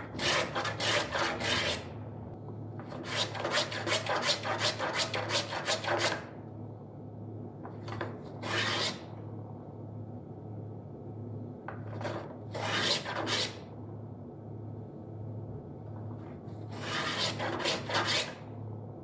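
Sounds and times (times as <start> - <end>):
hand plane scraping wood: 0.2 - 1.8, 3.0 - 6.2, 8.4 - 9.0, 12.0 - 13.6, 16.8 - 18.3.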